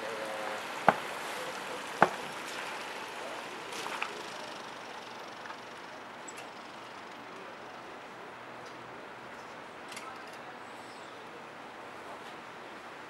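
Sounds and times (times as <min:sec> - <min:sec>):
traffic hiss: 0:00.0 - 0:09.8.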